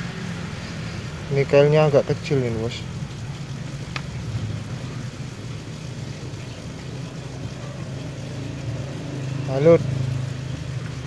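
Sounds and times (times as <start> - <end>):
distant engine humming: 0.0 - 11.0.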